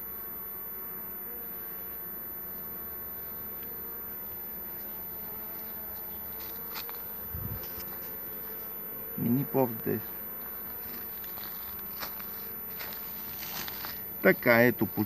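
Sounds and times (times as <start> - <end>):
honeybees buzzing: 0.0 - 15.0.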